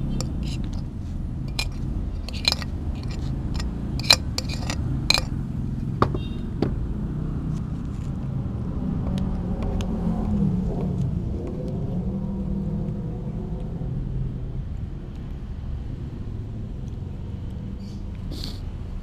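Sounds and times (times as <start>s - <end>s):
metal spoon scraping plastic bowl: 0.0s - 0.9s, 1.5s - 5.4s.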